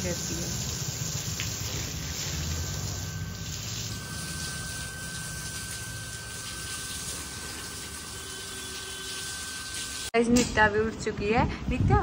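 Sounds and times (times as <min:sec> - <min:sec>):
hose spraying water: 0:00.0 - 0:10.2
faint high whine: 0:02.1 - 0:10.1.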